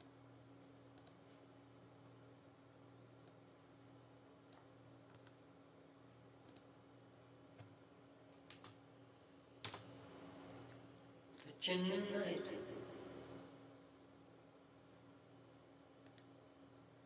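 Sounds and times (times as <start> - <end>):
low steady hum: 0.0 - 17.0
small clicks: 0.9 - 1.2, 4.5 - 5.4, 6.4 - 6.7, 8.3 - 8.8, 16.0 - 16.3.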